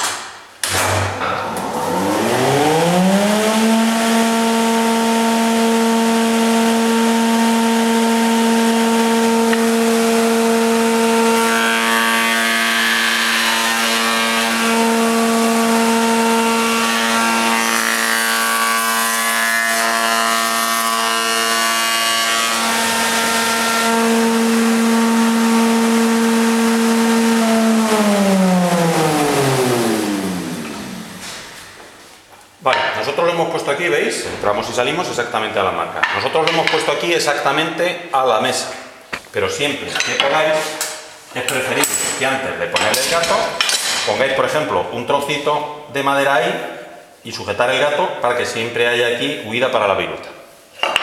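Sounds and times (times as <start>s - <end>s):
machine winding down: 1.4s - 19.0s, 20.8s - 31.6s
cutter cutting into wood: 1.4s - 31.3s.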